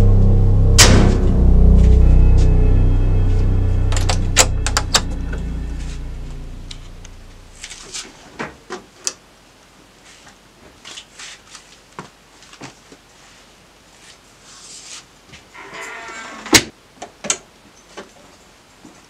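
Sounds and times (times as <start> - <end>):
low drone: 0.0 - 8.2.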